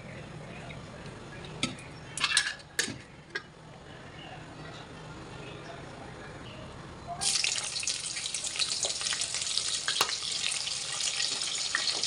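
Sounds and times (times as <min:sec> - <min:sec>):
vegetables sizzling in hot oil: 0:07.2 - 0:12.0.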